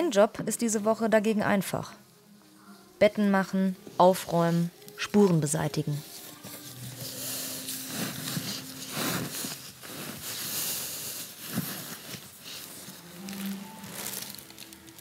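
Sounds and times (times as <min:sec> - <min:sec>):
bed sheet rustling: 0:05.9 - 0:15.0.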